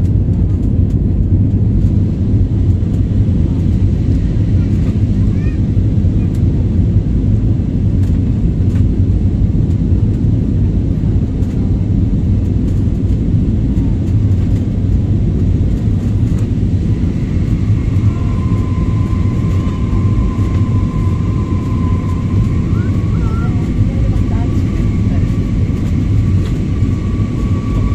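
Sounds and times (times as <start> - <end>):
airliner cabin rumble: 0.0 - 27.9
high whine: 0.0 - 27.9.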